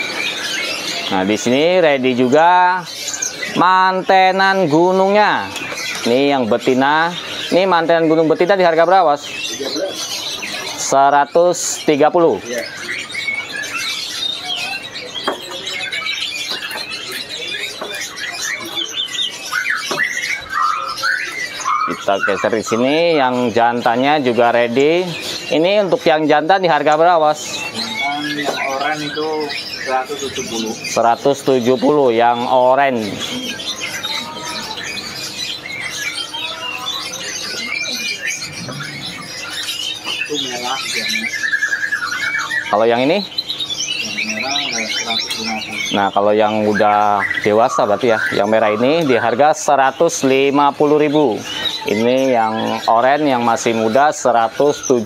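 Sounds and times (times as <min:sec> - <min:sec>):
songbirds chirping and twittering: 0:00.0 - 0:55.0
bird whistles: 0:12.4 - 0:23.6, 0:26.8 - 0:49.2.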